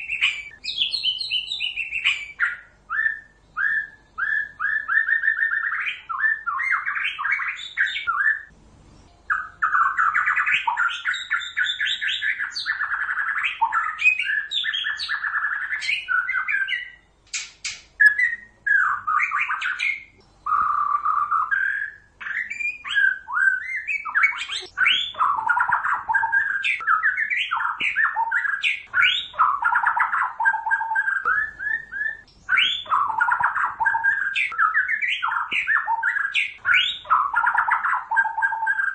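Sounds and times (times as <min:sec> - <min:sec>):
bird singing: 0:00.0 - 0:38.9
sharp clicks: 0:17.2 - 0:18.2.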